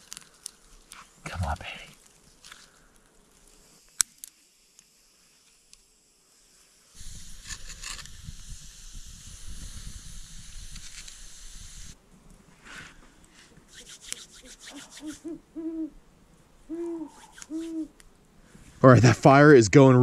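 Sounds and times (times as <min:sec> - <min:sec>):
sticks rustling and scraping: 0:00.0 - 0:05.8
campfire crackling: 0:00.0 - 0:19.4
owl hooting: 0:13.7 - 0:16.0, 0:16.6 - 0:18.0.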